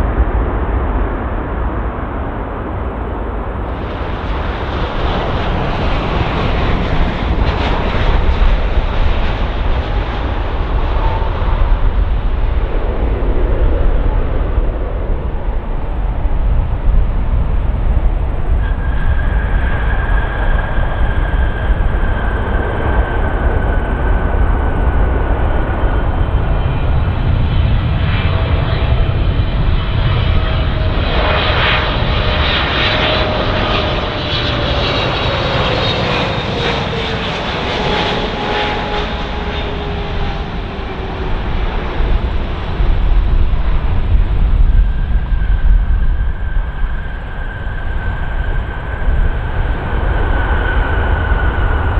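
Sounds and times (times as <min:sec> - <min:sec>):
jet engines rumbling: 0:00.0 - 0:51.9
lower whine: 0:00.0 - 0:51.9
rush of noise: 0:00.0 - 0:51.9.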